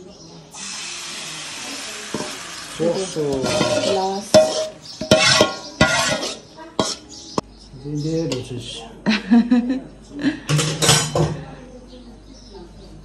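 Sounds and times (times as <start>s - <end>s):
pan sizzling: 0.6s - 7.0s
metal spoon scraping steel bowl: 2.0s - 7.1s.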